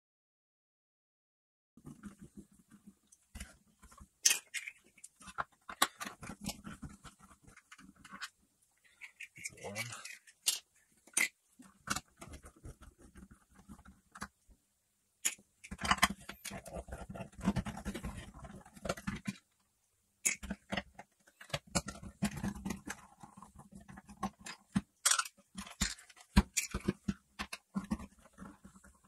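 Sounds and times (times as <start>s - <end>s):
plastic scraping and rattling: 1.8s - 14.4s, 15.2s - 19.6s, 20.2s - 29.0s
plastic clicks and knocks: 20.2s - 29.0s.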